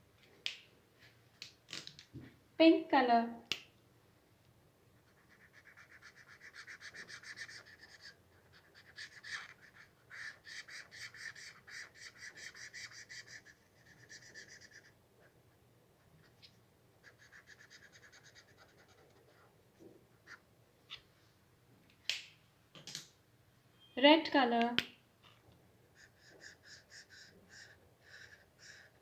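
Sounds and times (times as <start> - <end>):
felt-tip marker squeaking on paper: 5.1 - 14.9, 26.0 - 29.0.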